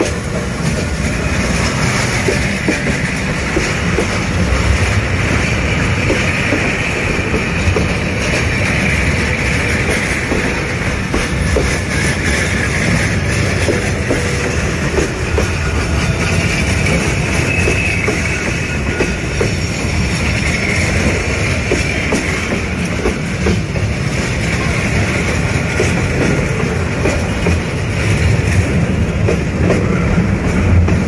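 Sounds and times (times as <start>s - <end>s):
steel wheels rumbling on rail: 0.0s - 31.0s
wheels clicking over rail joints: 0.0s - 31.0s
wheel squeal: 15.4s - 19.7s.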